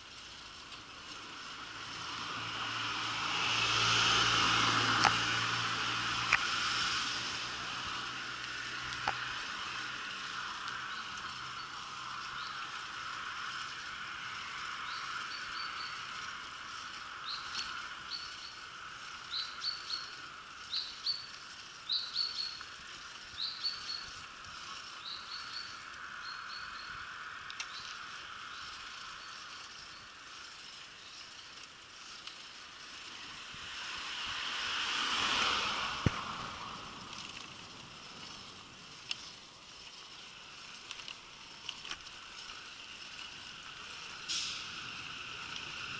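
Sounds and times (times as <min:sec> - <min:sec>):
bicycle rolling on street: 0:00.0 - 0:45.9
vehicle passing: 0:00.0 - 0:45.9
small bird chirping: 0:10.8 - 0:12.9, 0:14.7 - 0:16.3, 0:17.1 - 0:31.4.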